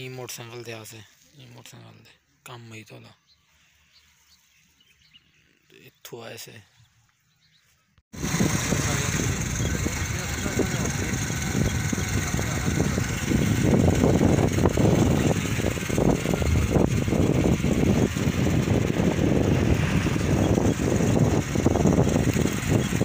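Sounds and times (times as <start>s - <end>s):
motorcycle engine: 8.1s - 23.0s
wind buffeting microphone: 8.2s - 23.0s.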